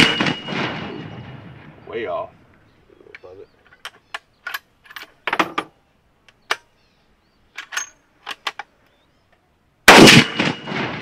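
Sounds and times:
rifle shot with echo: 0.0s - 2.0s, 9.9s - 11.0s.

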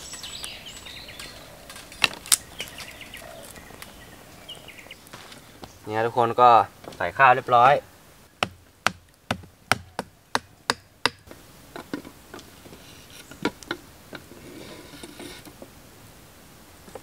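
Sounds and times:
tool striking wood: 8.4s - 11.3s.

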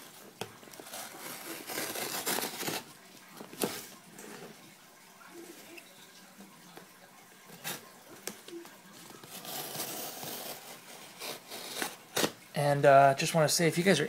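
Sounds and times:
knife cutting cardboard box tape: 0.8s - 2.9s, 9.2s - 12.4s.

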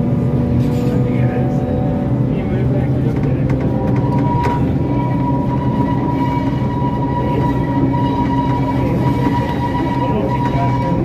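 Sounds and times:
rail noise: 0.0s - 11.0s
train engine drone: 0.0s - 11.0s
high whine: 3.8s - 11.0s.

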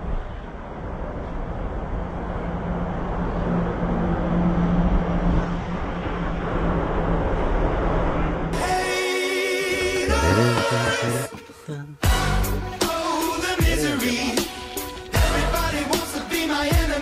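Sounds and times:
outdoor noise: 0.0s - 17.0s
vehicle engine humming: 0.0s - 17.0s.

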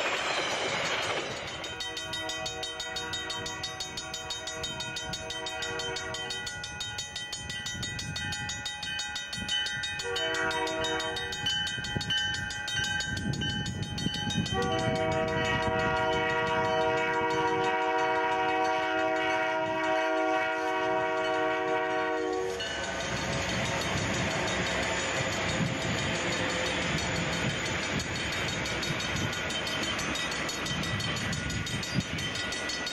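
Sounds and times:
locomotive air horn blasts: 2.0s - 6.4s, 10.0s - 11.4s, 14.5s - 23.2s.

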